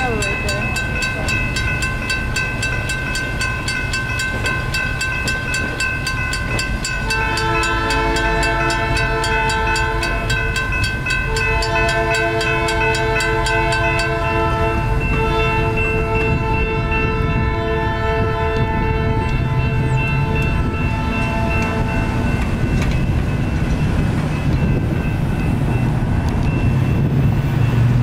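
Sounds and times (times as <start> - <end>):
crossing signal bell dinging: 0.0 - 28.0
train horn blasts: 7.0 - 22.4.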